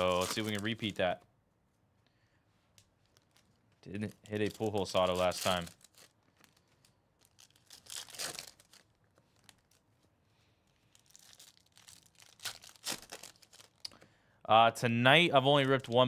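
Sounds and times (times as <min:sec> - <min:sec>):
foil wrapper crinkling: 0:00.0 - 0:01.0, 0:02.9 - 0:10.0, 0:10.6 - 0:14.0.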